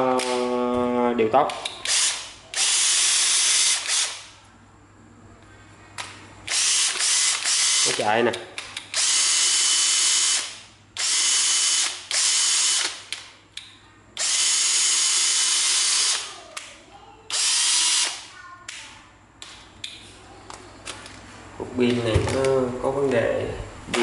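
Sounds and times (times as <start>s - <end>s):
cordless drill spinning: 1.9s - 4.2s, 6.5s - 8.0s, 9.0s - 12.9s, 14.2s - 16.3s, 17.3s - 18.1s.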